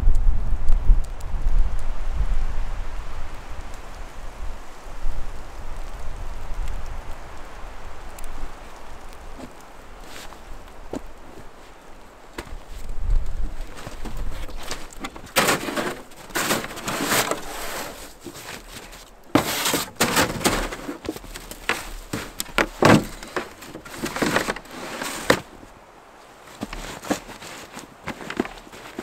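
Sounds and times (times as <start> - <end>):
footsteps crunching in snow: 8.6 - 29.0
gear rustling and knocking: 12.4 - 25.6, 26.5 - 29.0.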